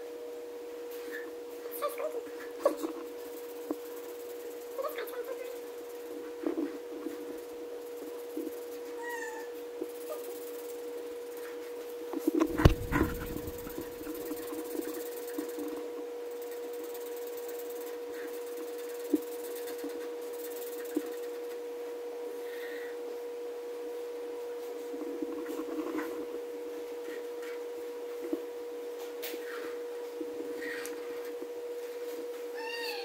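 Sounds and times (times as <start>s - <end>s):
steady humming tone: 12.1s - 17.1s
marker scratching on paper: 12.4s - 13.9s.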